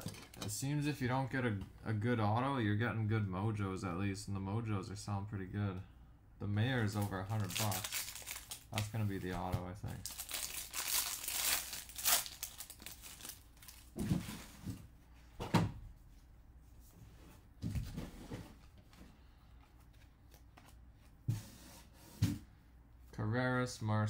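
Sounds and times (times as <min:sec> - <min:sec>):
wrapper crinkling: 0:06.8 - 0:09.3, 0:09.9 - 0:14.0.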